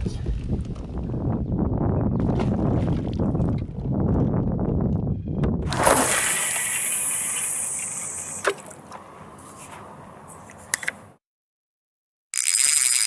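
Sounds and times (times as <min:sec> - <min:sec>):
wind buffeting microphone: 0:00.0 - 0:06.0
water-like splash and rush: 0:05.7 - 0:08.7.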